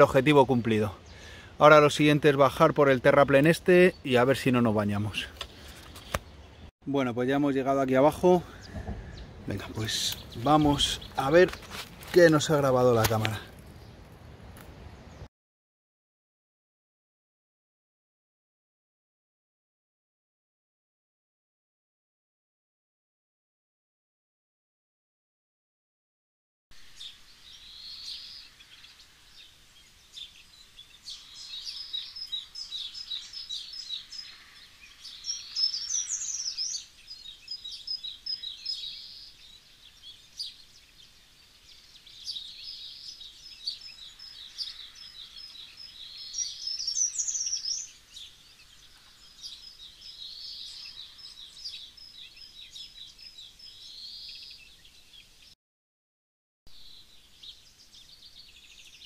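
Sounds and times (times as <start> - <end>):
songbirds singing and chirping: 0.0 - 15.3, 26.8 - 55.6, 56.7 - 59.0.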